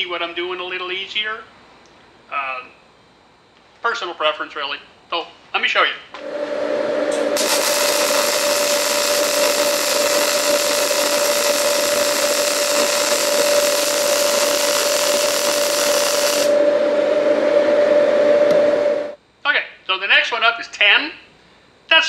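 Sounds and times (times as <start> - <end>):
steady hum: 6.1 - 19.4
welding arc hissing: 7.4 - 16.6.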